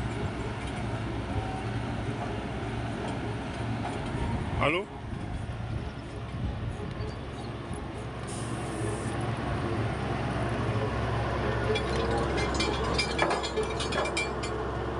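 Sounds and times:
metallic clinks and rattles: 0:11.7 - 0:14.6.

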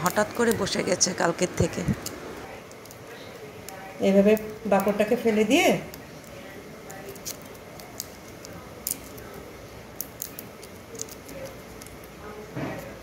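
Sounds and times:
seed husks cracking by hand: 0:05.8 - 0:13.0.

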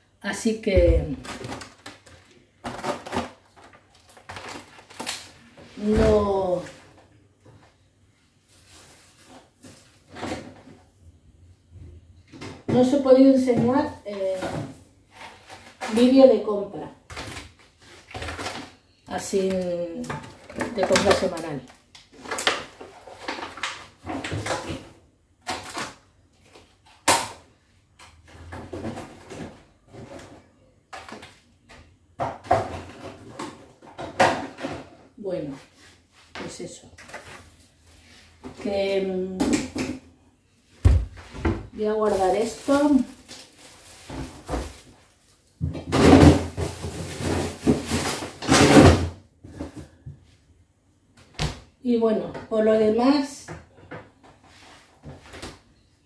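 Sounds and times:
packs knocking and rustling on shelves: 0:00.7 - 0:06.7, 0:17.1 - 0:27.3, 0:40.8 - 0:50.2
packaged food handled: 0:42.0 - 0:45.5.

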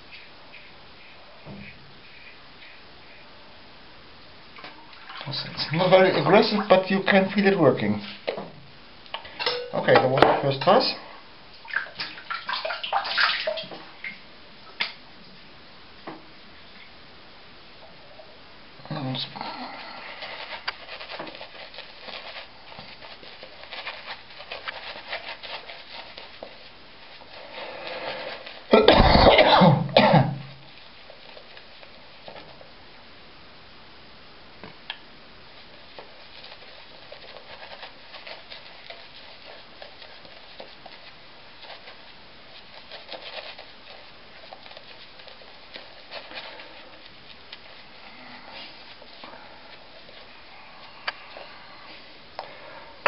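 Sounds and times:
shaving brush scrubbing: 0:19.9 - 0:28.7, 0:35.5 - 0:51.6
person coughing: 0:28.7 - 0:30.5.

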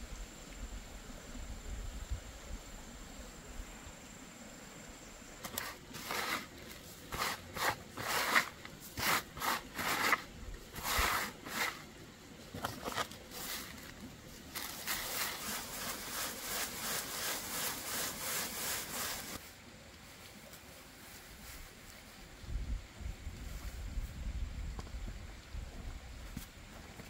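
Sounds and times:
grain rasping in shaken sieve: 0:05.4 - 0:11.9, 0:12.6 - 0:19.4
hands scraping grain on bamboo tray: 0:05.4 - 0:11.9, 0:14.6 - 0:19.4.

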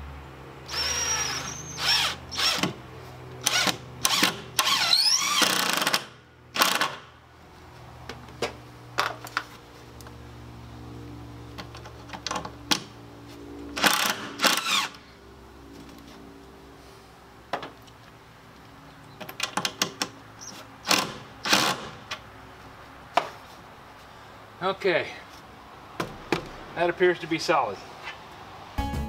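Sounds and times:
cordless drill driving screws: 0:00.7 - 0:02.8, 0:03.4 - 0:07.0, 0:13.8 - 0:15.0.

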